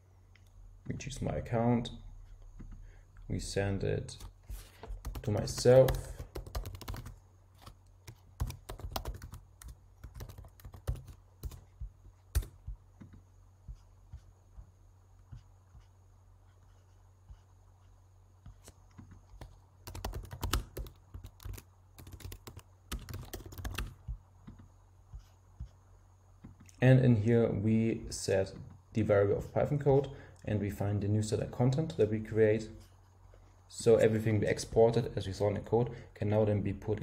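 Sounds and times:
typing on computer keyboard: 4.9s - 11.6s, 19.4s - 24.2s.

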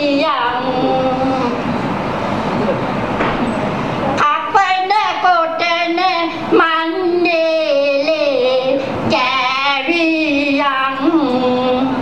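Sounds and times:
woman singing into microphone: 0.0s - 1.6s, 4.2s - 12.0s.

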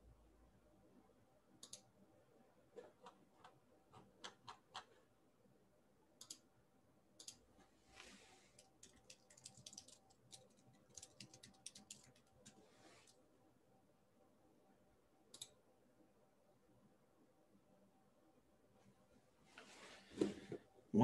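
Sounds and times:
faint steady hum: 0.0s - 21.0s
mouse clicks: 1.6s - 1.9s, 6.2s - 6.4s, 15.3s - 15.6s.

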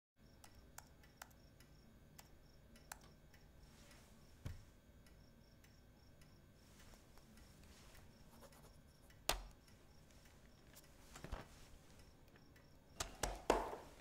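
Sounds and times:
laptop keyboard taps: 9.3s - 9.6s, 13.0s - 13.9s.

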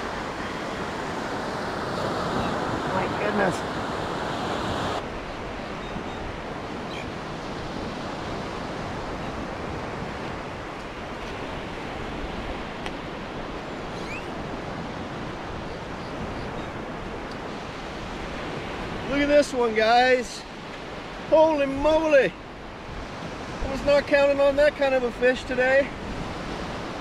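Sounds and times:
surf washing onto beach: 0.0s - 5.7s.

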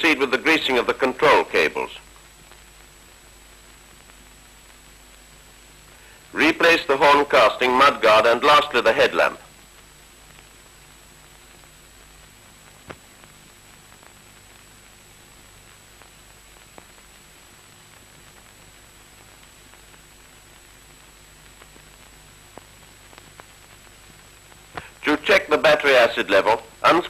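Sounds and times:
faint high-pitched whine: 0.0s - 27.0s
film soundtrack hiss: 0.0s - 27.0s
faint clicks and pops: 2.0s - 6.0s, 9.5s - 25.0s.

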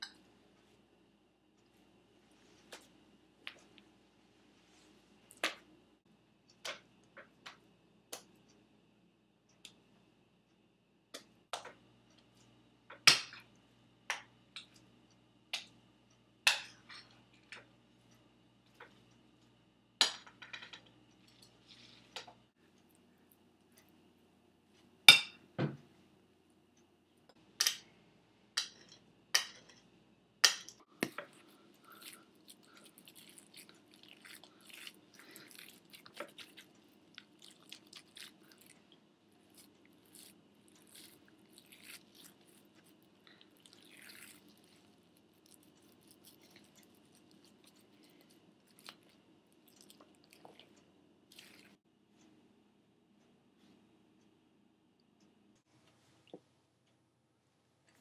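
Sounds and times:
hands squishing mashed potato: 31.0s - 50.7s, 51.3s - 51.8s.

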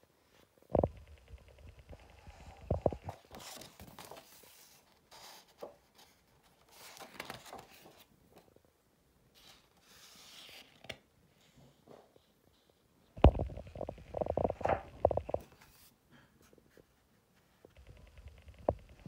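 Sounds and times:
book pages rustling: 1.9s - 8.5s, 9.4s - 11.0s.

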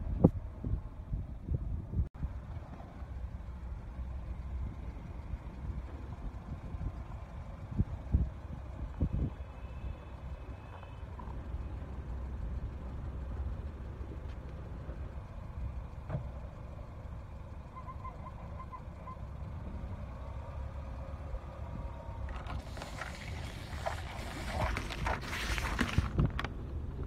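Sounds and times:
car engine rumbling: 0.0s - 27.0s
tyre crushing plastic tubs: 22.3s - 26.5s.

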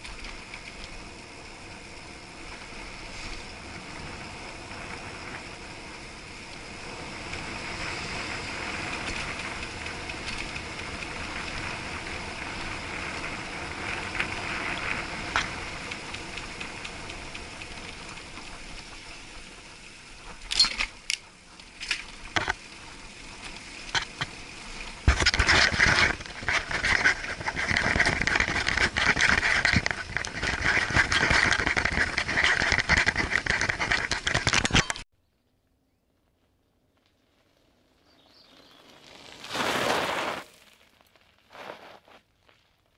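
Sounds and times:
bike and camera rattling: 0.0s - 35.1s, 35.7s - 42.2s
muffled wind and tyres rushing: 0.0s - 35.1s, 36.5s - 42.2s.

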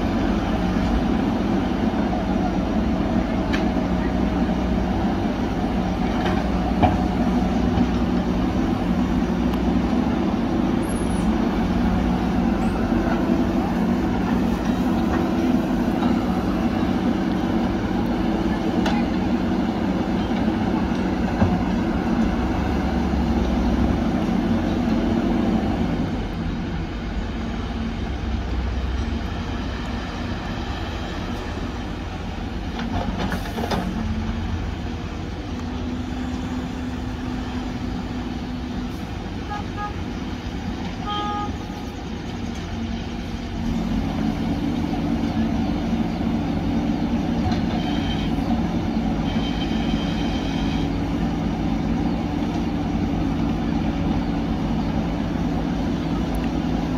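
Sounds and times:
diesel engines rumbling: 0.0s - 56.9s.

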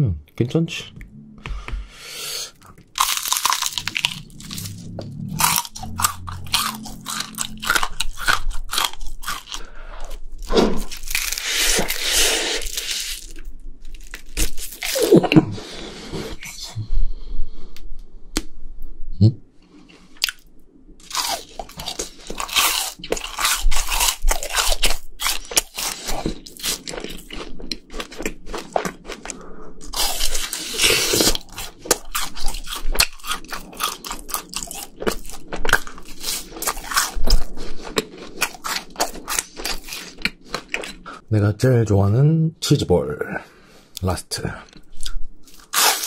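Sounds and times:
crunching and chewing food: 2.5s - 15.4s, 19.9s - 41.3s, 44.6s - 46.0s.

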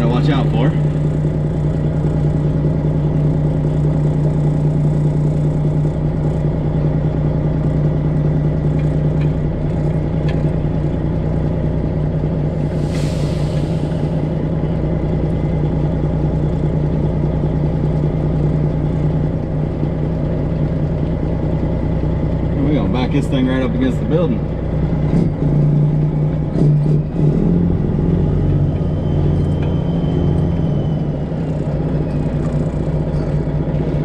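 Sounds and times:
truck diesel engine running: 0.0s - 34.0s
brief hiss: 12.8s - 13.9s.

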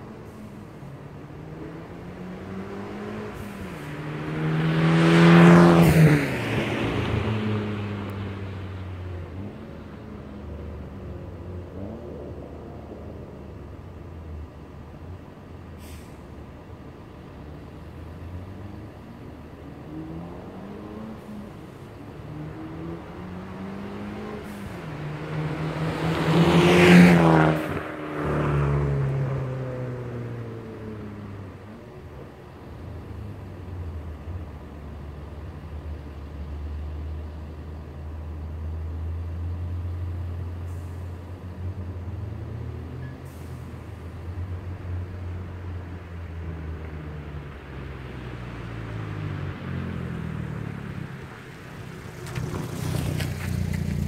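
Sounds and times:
distant car engine accelerating: 0.0s - 14.6s, 17.0s - 54.0s
faint hiss: 15.0s - 17.5s
short high hisses: 15.8s - 16.2s.

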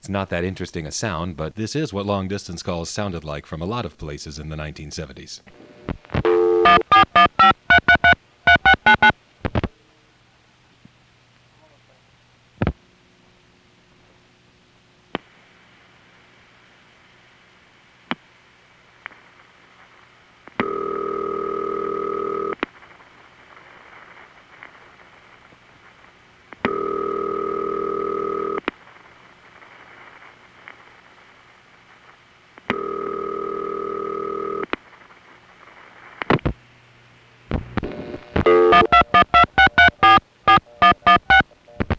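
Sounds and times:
telephone ringback tone: 6.3s - 9.1s, 20.6s - 22.6s, 26.7s - 28.6s, 32.7s - 34.6s, 38.4s - 41.8s.

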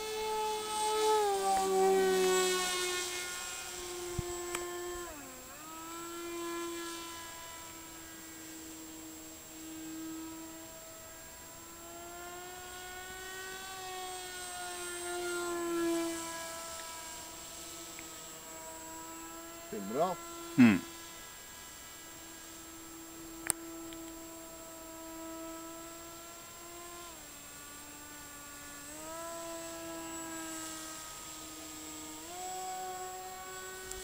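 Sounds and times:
model plane propeller whining: 0.0s - 34.0s.

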